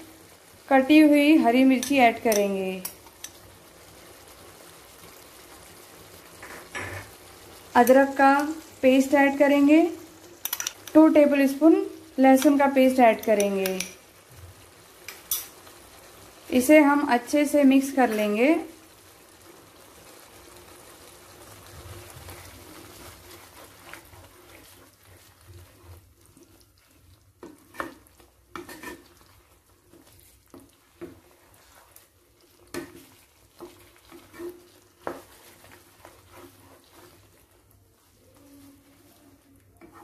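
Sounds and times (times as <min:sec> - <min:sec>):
food sizzling in a pan: 0:00.0 - 0:40.0
wooden spatula scraping pan: 0:22.0 - 0:40.0.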